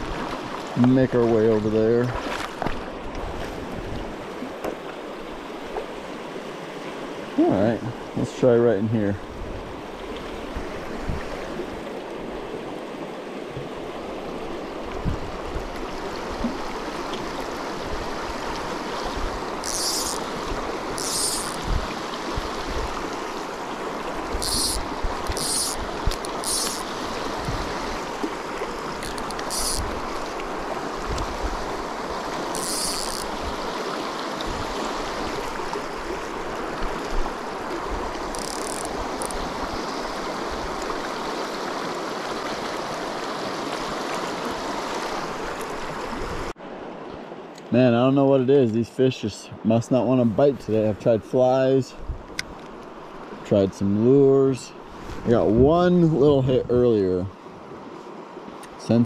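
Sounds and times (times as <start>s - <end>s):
river water rushing over rapids: 0.0s - 8.2s, 9.2s - 47.6s.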